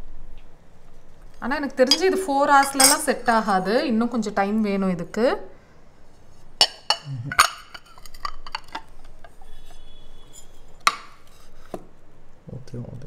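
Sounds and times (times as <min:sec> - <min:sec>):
ceramic bowl clinking on plate: 0:01.8 - 0:03.3, 0:06.6 - 0:11.2.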